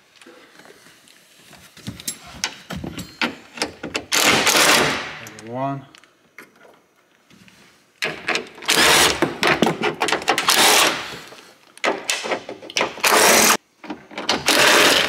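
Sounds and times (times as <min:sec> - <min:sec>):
cordless drill spinning bolts: 0:08.7 - 0:09.2, 0:10.4 - 0:10.9, 0:14.3 - 0:15.0.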